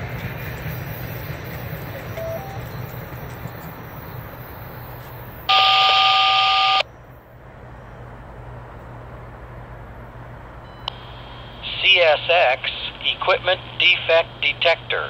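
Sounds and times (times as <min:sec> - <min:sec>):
dual-tone beep over radio: 0:05.5 - 0:06.8.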